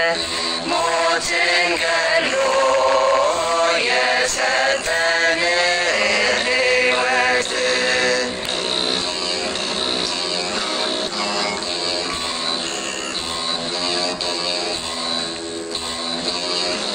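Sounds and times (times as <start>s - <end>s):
person chanting a hymn: 0.0s - 11.7s.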